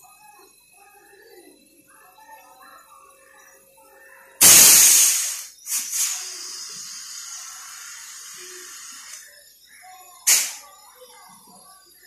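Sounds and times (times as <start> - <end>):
pressurised gas hissing from tubing: 4.4 - 9.2, 10.3 - 10.6.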